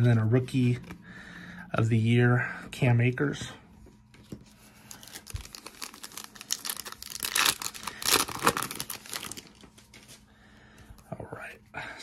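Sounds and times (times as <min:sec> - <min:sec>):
foil card pack crinkling and tearing: 0:04.6 - 0:10.0.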